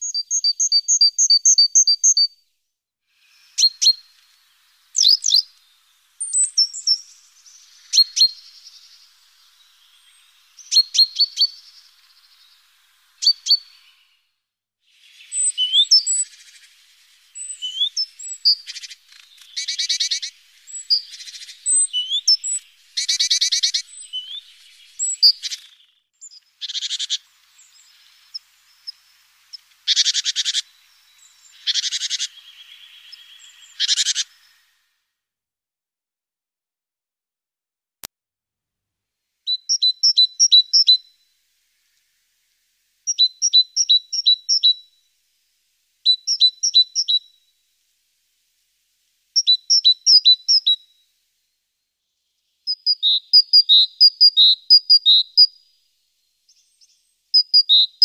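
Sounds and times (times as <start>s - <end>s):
thin whistled bird notes: 0.0s - 2.4s, 3.1s - 35.0s, 39.4s - 45.1s, 46.0s - 47.6s, 49.4s - 51.2s, 51.8s - 58.0s
songbird chip notes: 3.2s - 14.2s, 15.0s - 34.7s
fast rattling bird trills: 15.0s - 34.5s.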